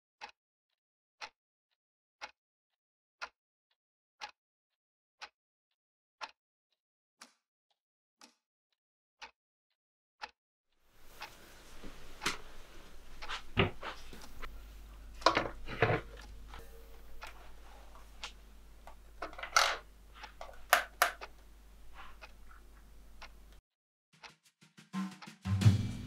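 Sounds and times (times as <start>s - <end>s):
steady low hum: 11.0s - 23.6s.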